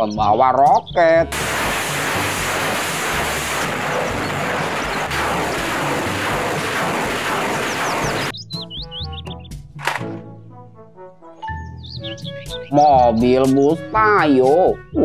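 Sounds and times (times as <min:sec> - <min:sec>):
rocket launcher firing salvo: 0:01.3 - 0:08.3.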